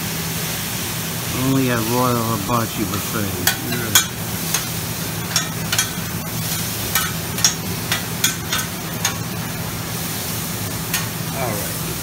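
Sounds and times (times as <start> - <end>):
food sizzling: 0.0 - 12.0
steady low hum: 0.0 - 12.0
metal spatulas scraping on griddle: 3.4 - 9.2.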